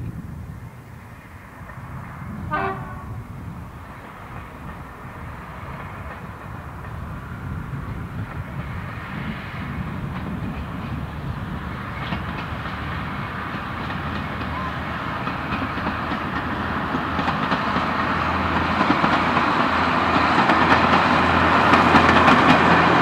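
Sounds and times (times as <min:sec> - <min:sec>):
diesel train engines and wheels: 0:00.0 - 0:23.0
train horn toot: 0:02.4 - 0:03.3.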